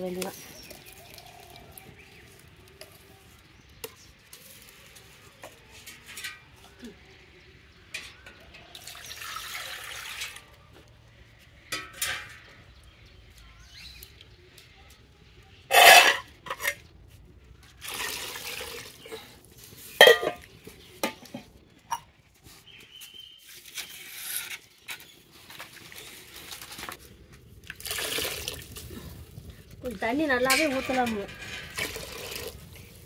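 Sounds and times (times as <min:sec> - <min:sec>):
water pouring and splashing into pot: 0:00.0 - 0:02.6, 0:08.7 - 0:10.6, 0:17.7 - 0:20.5, 0:25.4 - 0:33.0
steel vessels clinking: 0:11.6 - 0:12.8, 0:15.7 - 0:16.9, 0:19.9 - 0:22.1, 0:29.8 - 0:33.0.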